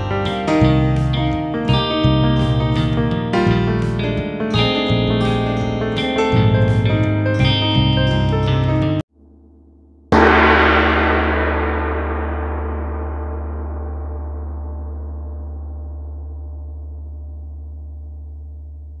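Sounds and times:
gong ringing: 10.1s - 17.0s.

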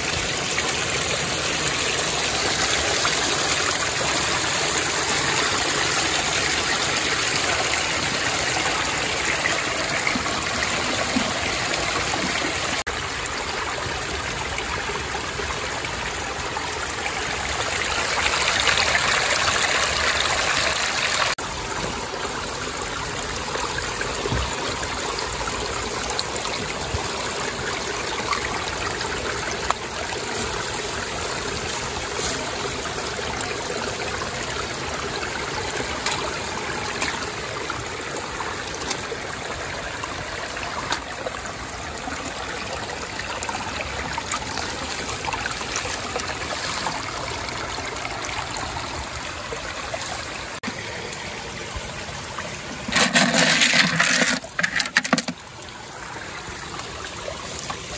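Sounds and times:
stream water flowing over rocks: 0.0s - 57.9s.

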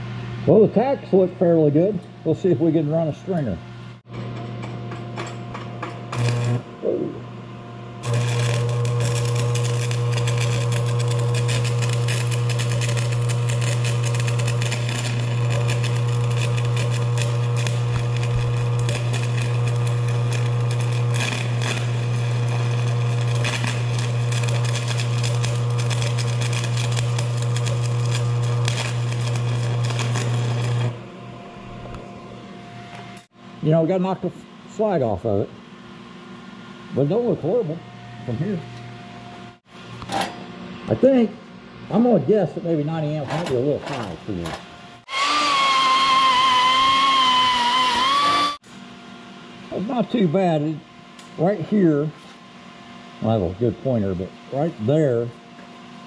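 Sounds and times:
welder transformer hum: 0.0s - 56.0s
welding arc crackling: 6.1s - 6.7s, 8.0s - 31.0s.

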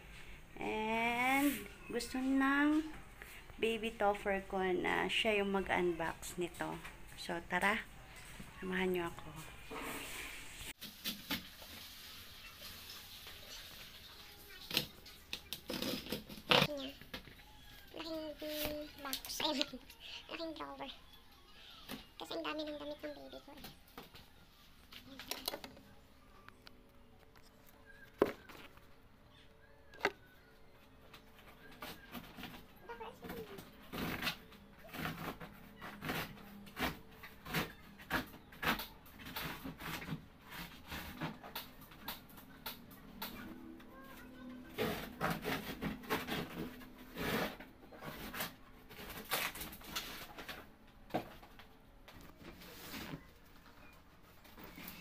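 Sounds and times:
cardboard rustling and scraping: 14.7s - 19.8s, 52.3s - 55.0s.

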